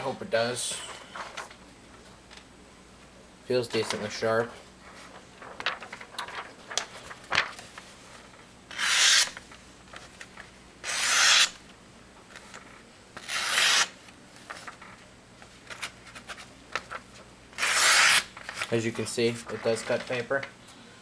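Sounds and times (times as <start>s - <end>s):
paper handling clicks: 5.4s - 7.8s, 15.6s - 17.1s
knife slicing paper: 8.7s - 9.4s, 10.8s - 11.6s, 13.2s - 14.0s, 17.6s - 18.7s.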